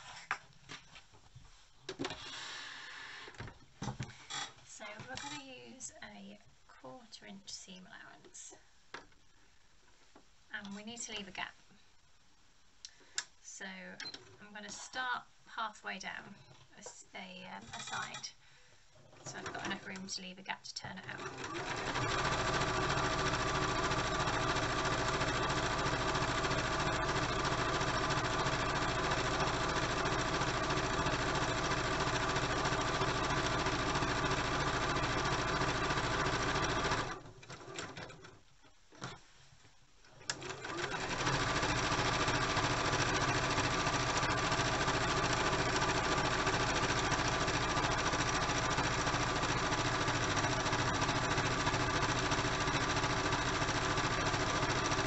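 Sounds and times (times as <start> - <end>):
sewing machine stitching: 19.2 - 20.0, 21.1 - 38.4, 40.2 - 55.0.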